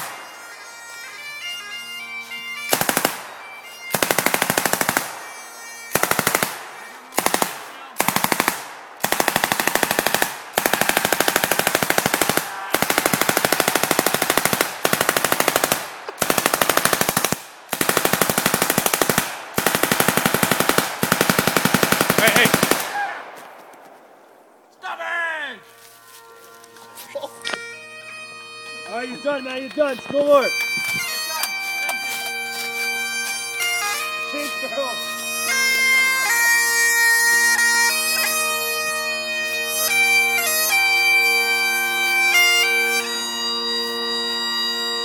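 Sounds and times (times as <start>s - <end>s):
bagpipes playing: 0.0s - 17.3s, 25.5s - 45.0s
automatic gunfire bursts: 2.7s - 3.3s, 3.9s - 5.2s, 5.9s - 23.0s.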